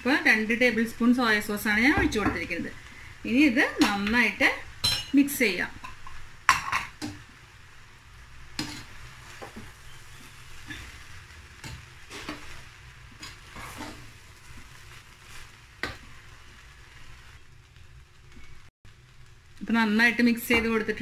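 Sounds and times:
rice sizzling in a pan: 0.0s - 21.0s
spoon scraping a pot: 8.6s - 10.6s, 11.7s - 12.6s, 13.2s - 14.1s.

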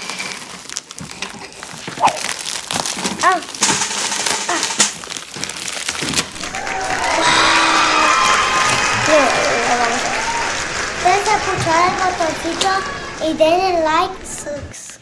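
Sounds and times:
plastic bag crinkling: 0.0s - 7.1s.

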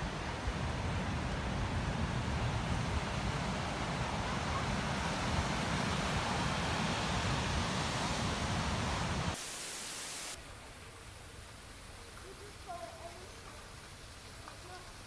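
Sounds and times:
wind rumbling on microphone: 0.0s - 9.4s.

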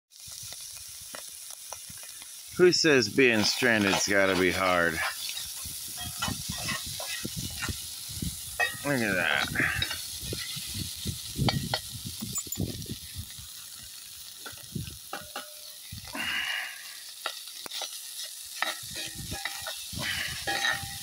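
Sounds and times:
meat sizzling: 0.1s - 21.0s
knife scraping skillet: 3.3s - 7.8s, 8.5s - 10.7s, 17.2s - 21.0s.

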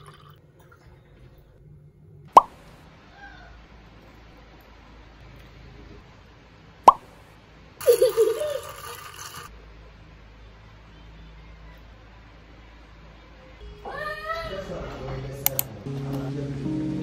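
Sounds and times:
ice and straw rattling in cup: 7.8s - 9.5s.

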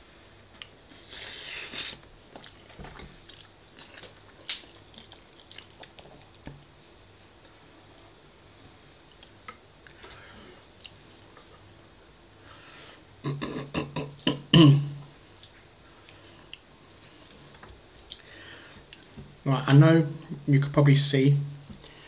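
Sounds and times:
faint chewing: 0.3s - 6.5s, 7.2s - 12.6s, 15.0s - 19.3s.

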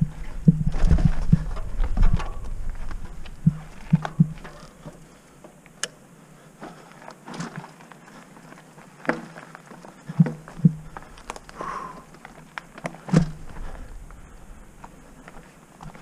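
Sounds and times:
bike frame rattling and knocking: 0.0s - 5.0s
bike tyre rumble on dirt: 0.0s - 5.4s, 6.4s - 16.0s
bike clicking: 0.0s - 16.0s.

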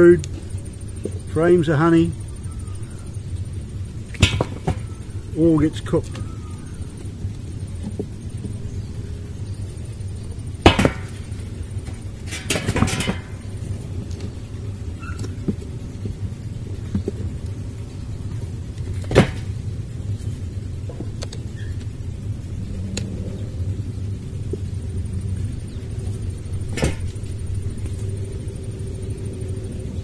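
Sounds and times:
low steady rumble: 0.0s - 30.0s
wood cracking and knocking: 4.1s - 4.9s, 10.6s - 13.6s, 26.7s - 27.2s.

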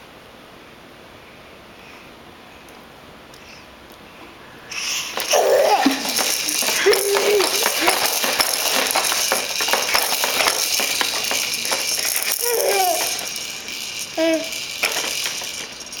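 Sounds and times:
baby vocalizing: 4.7s - 7.6s
baby bouncer toys rattling: 4.7s - 16.0s.

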